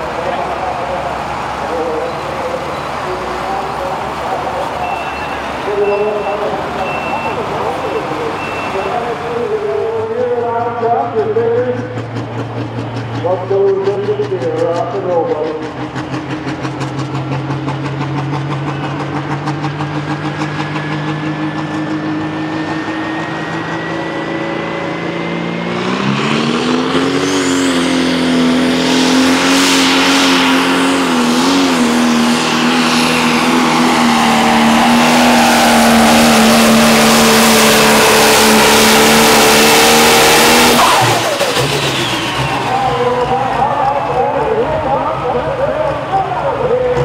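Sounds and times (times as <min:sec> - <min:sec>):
diesel engine revving: 0:00.0 - 0:47.0
turbo whine: 0:17.5 - 0:26.2.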